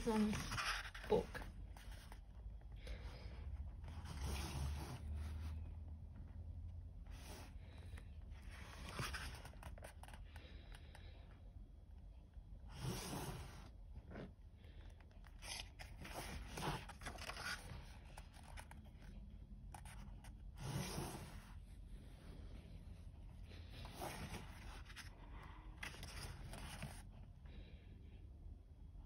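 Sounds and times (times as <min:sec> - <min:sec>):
paper pages rustling: 0:00.0 - 0:02.5, 0:07.1 - 0:10.5, 0:15.1 - 0:21.6, 0:23.5 - 0:27.2.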